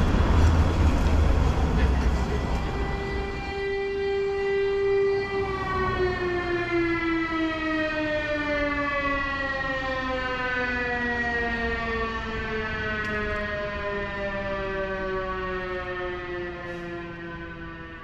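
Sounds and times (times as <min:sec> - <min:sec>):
air raid siren winding down: 0:00.0 - 0:18.0.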